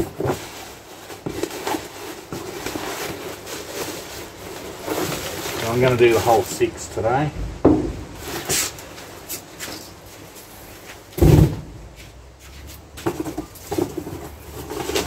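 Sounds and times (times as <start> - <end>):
cardboard handling: 0.0 - 6.6
boxes thudding on metal hood: 7.4 - 8.8, 11.1 - 12.0.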